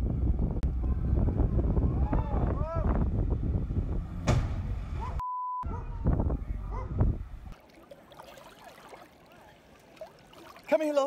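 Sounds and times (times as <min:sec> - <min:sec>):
wind rumble on microphone: 0:00.0 - 0:07.6
censor bleep: 0:05.2 - 0:05.7.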